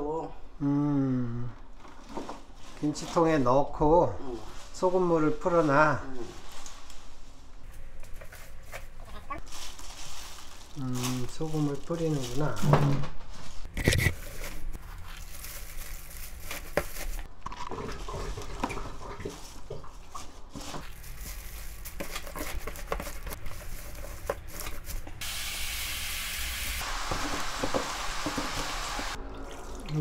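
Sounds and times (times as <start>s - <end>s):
leafy greens rustling and crackling: 1.8s - 25.2s.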